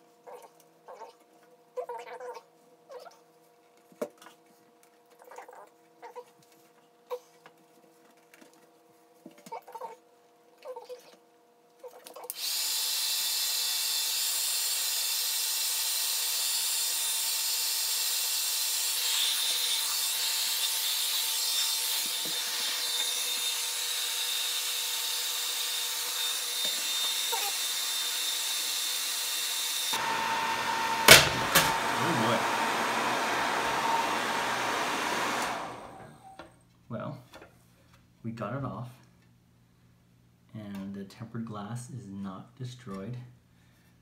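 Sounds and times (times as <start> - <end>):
hairdryer running: 21.1 - 36.5.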